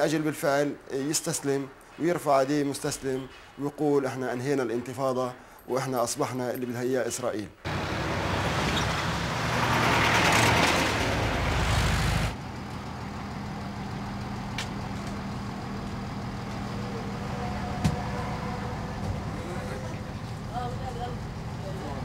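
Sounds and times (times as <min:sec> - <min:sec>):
bus engine with rushing hiss: 0:07.7 - 0:22.0
engine hum inside bus: 0:07.7 - 0:22.0.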